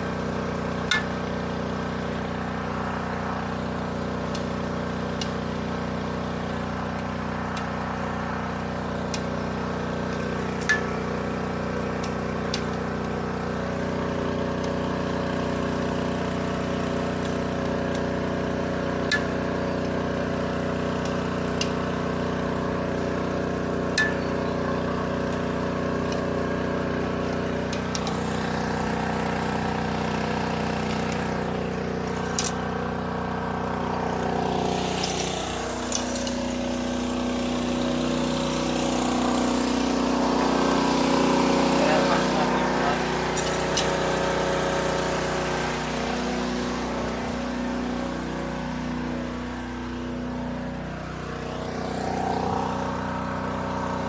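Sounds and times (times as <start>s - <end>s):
small engine running: 0.0s - 54.0s.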